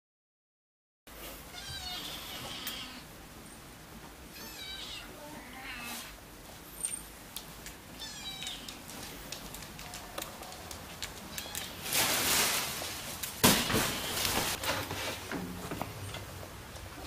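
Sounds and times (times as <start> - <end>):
cat meowing: 1.5 - 3.1, 4.3 - 6.1, 8.0 - 8.8, 11.3 - 11.8.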